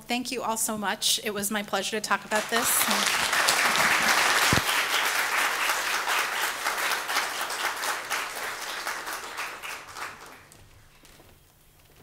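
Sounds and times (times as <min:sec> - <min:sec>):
audience applauding: 0:02.2 - 0:10.7.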